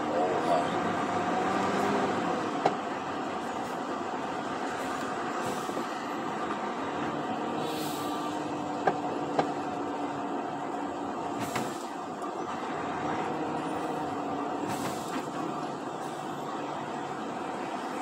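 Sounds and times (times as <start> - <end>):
truck engine and road drone: 0.0 - 18.0
air hissing: 7.6 - 8.2.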